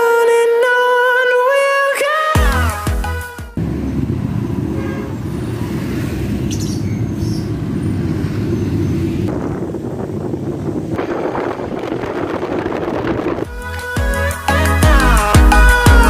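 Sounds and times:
motorcycle and car engines: 3.6 - 13.5.

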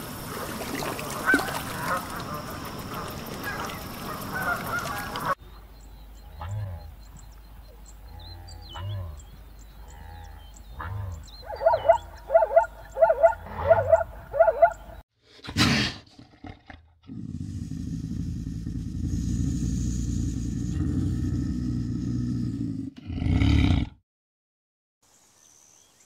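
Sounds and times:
zebra barking calls: 10.8 - 15.0.

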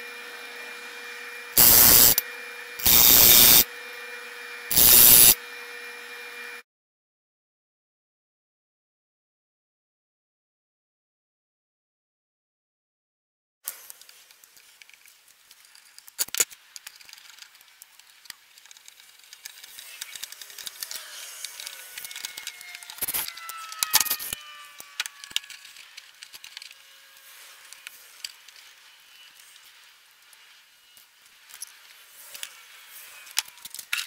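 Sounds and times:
metal parts clicking and clattering: 14.6 - 26.8.

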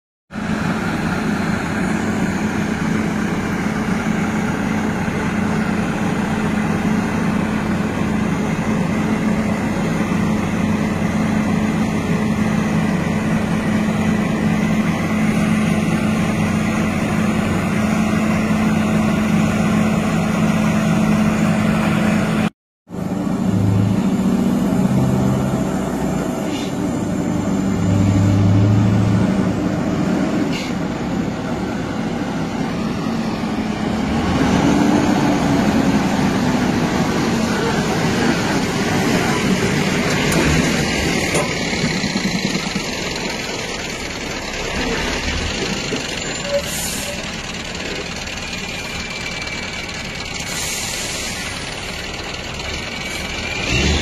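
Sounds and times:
diesel engine running: 0.3 - 54.0
heavy truck approaching: 0.3 - 54.0.

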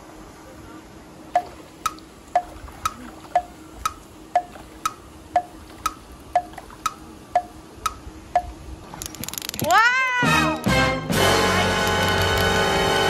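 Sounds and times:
clock ticking: 1.4 - 8.6.

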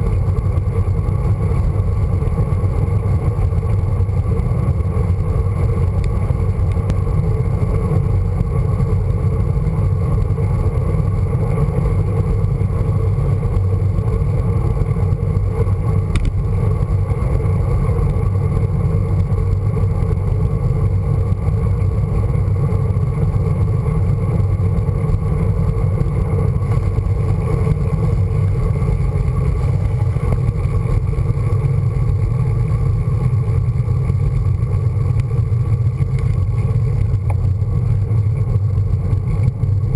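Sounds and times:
bicycle tyres on tarmac: 0.0 - 39.9.

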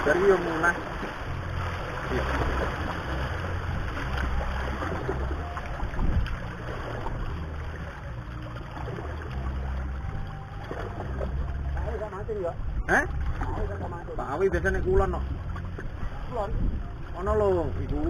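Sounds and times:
wind buffeting microphone: 0.0 - 8.0, 12.5 - 18.0.

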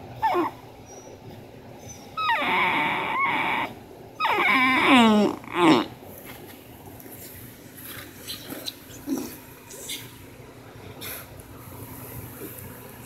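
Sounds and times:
dog whining and moaning: 0.0 - 6.0.

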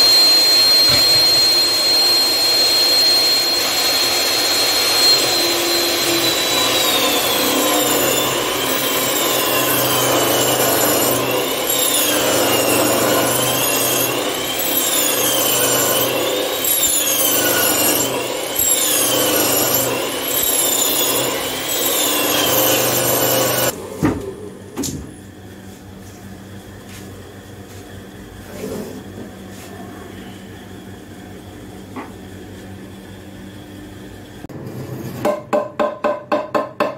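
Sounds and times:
power tool cutting wood: 0.0 - 23.8.

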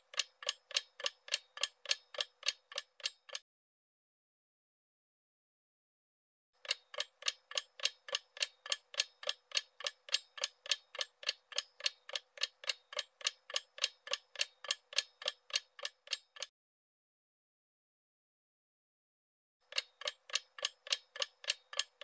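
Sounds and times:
clock ticking: 0.0 - 3.4, 6.6 - 16.5, 19.7 - 22.0.

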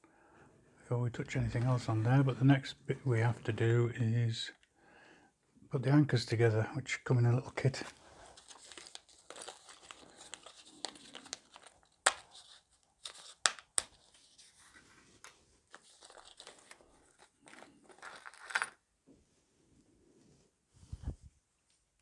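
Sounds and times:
plastic bag crinkling: 7.7 - 14.1, 15.7 - 18.6.

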